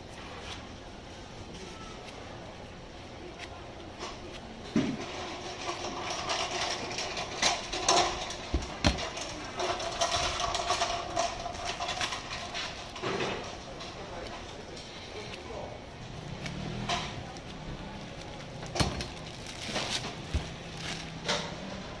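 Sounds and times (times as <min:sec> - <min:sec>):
plastic bag crinkling: 0:05.4 - 0:22.0.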